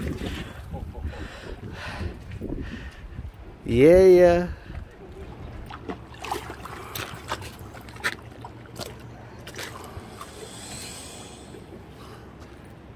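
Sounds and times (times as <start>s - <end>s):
low background rumble: 0.0s - 12.9s
sharp water splashes: 5.6s - 11.7s.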